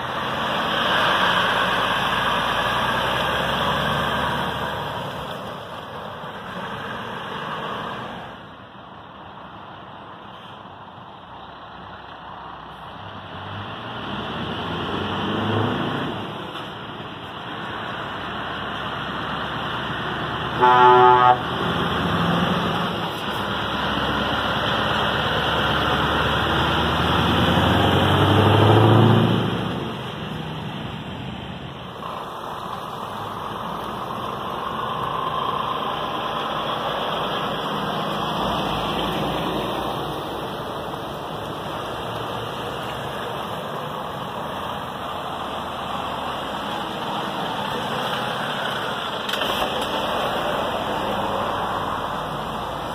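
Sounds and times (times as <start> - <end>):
diesel lorry engines: 0.0 - 52.9
truck horn toot: 20.5 - 21.6.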